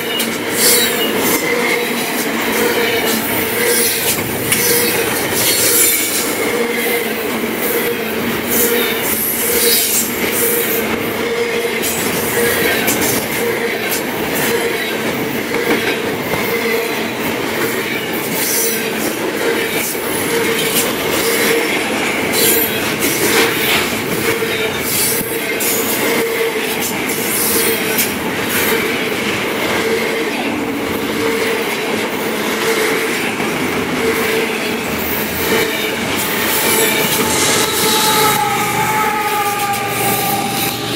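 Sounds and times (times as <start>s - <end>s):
train wheels rumbling on rails: 0.0s - 40.9s
wheel squeal: 36.2s - 40.9s.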